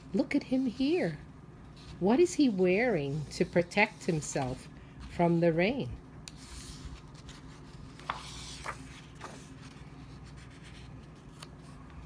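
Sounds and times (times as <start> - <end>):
paper page rustling: 6.4 - 12.0.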